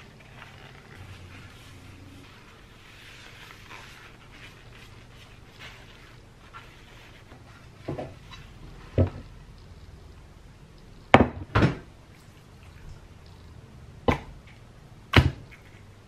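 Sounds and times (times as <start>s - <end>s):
paper towel wiping: 0.0s - 9.0s.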